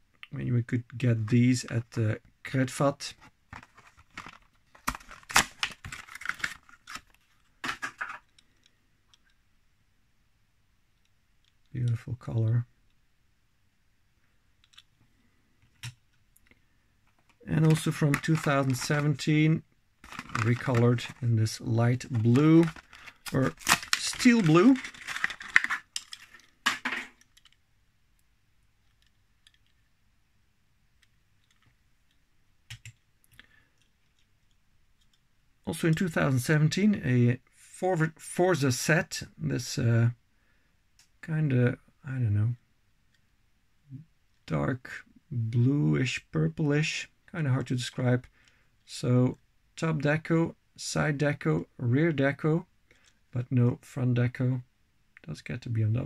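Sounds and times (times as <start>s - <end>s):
plastic blister crackling: 17.2s - 19.3s, 20.0s - 27.4s
cardboard tearing: 20.0s - 21.2s, 22.2s - 25.8s.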